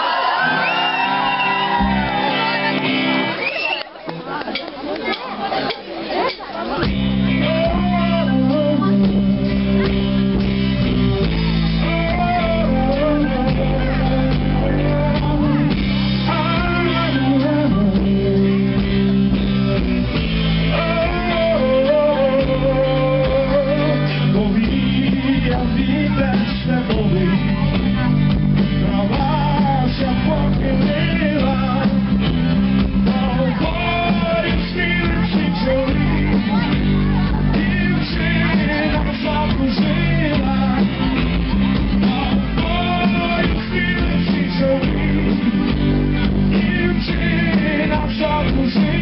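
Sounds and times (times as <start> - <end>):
live rock band: 0.0 - 49.0
electric guitar: 0.2 - 5.2, 6.5 - 49.0
man singing into microphone: 7.2 - 10.2, 11.5 - 19.2, 20.5 - 28.1, 28.8 - 41.2, 41.8 - 49.0.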